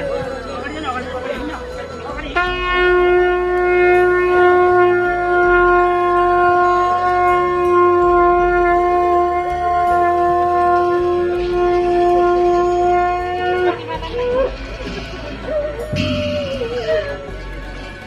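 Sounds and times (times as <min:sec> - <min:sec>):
horn long held note: 0:02.3 - 0:14.6, 0:15.8 - 0:17.8.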